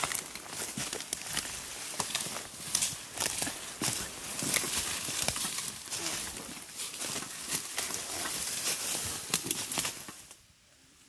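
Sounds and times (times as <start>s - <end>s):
footsteps crunching dry leaves: 0.0s - 10.4s
twigs cracking: 0.0s - 10.4s
vegetation rustling against clothing: 0.0s - 10.5s.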